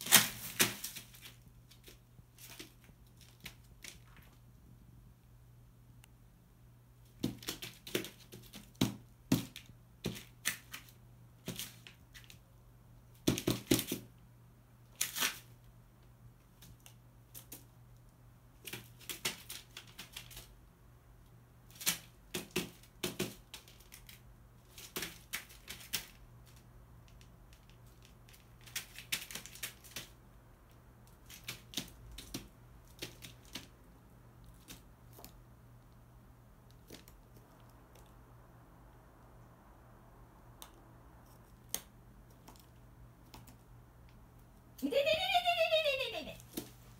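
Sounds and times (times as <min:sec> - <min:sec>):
paper rustling: 0:00.0 - 0:04.4
beak tapping on newspaper: 0:13.2 - 0:14.1, 0:18.6 - 0:20.5, 0:21.7 - 0:26.2, 0:27.2 - 0:30.2, 0:31.2 - 0:33.7.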